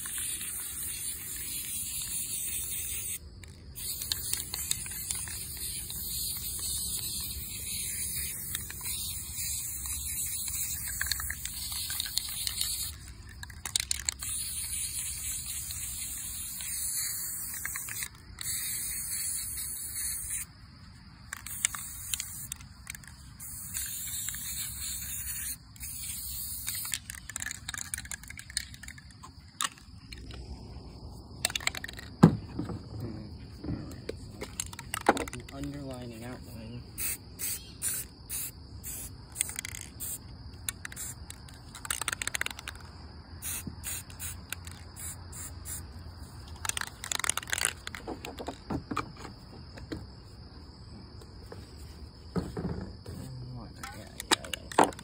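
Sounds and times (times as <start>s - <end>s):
spray paint can hissing: 0.0s - 20.5s, 21.3s - 30.2s, 31.4s - 32.1s, 34.4s - 36.2s, 37.0s - 48.6s.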